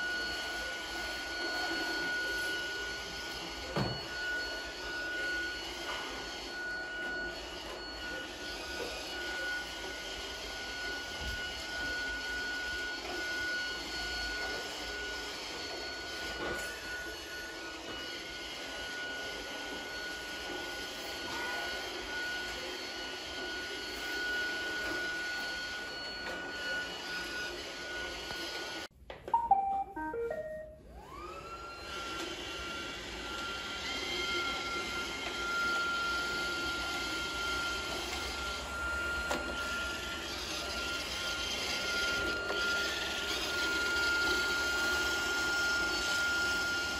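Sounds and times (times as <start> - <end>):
robot vacuum motor whine: 0.0 - 28.9, 30.9 - 46.9
electronic beeping notes: 29.3 - 30.8.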